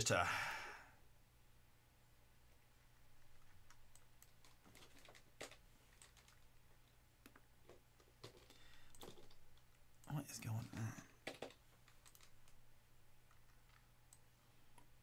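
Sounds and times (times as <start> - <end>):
computer keys clicking: 3.3 - 6.5, 7.2 - 12.6, 13.2 - 14.2.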